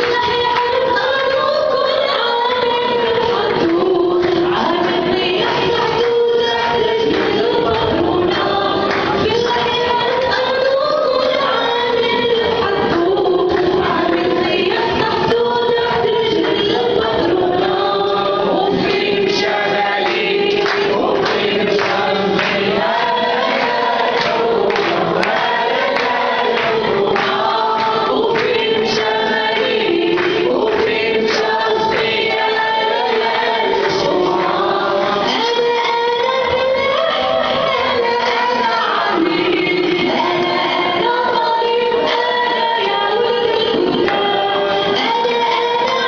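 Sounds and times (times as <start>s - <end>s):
crowd singing along: 0.0s - 46.0s
woman singing into microphone: 0.0s - 46.0s.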